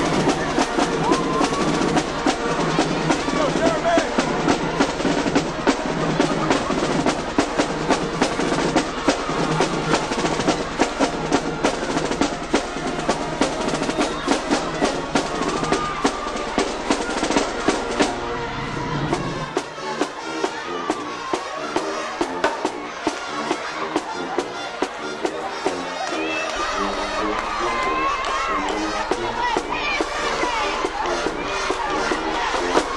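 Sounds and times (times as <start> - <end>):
music with loud drumming: 0.0 - 18.2, 26.8 - 32.9.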